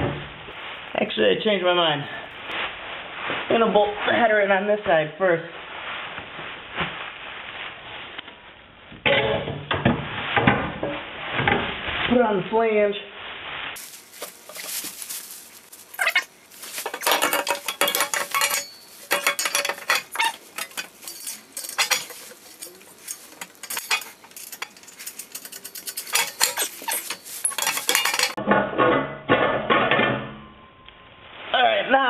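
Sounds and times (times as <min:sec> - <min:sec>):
metal tools clinking and clattering: 0:13.8 - 0:28.4.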